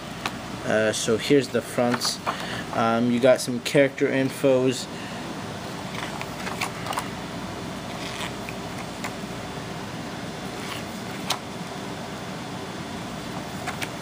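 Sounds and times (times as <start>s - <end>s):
steady background hum: 0.0s - 14.0s
booklet pages turning: 6.0s - 7.1s, 7.9s - 9.1s, 10.6s - 11.4s.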